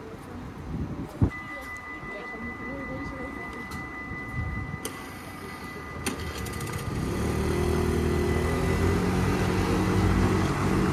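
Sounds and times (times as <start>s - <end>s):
steady high tone: 1.2s - 10.9s
motor scooter engine: 4.8s - 10.9s.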